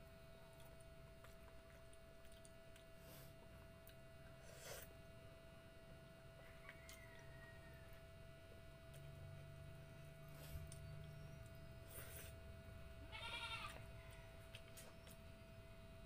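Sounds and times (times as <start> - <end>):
faint steady hum: 0.0 - 16.0
person chewing: 0.6 - 5.0.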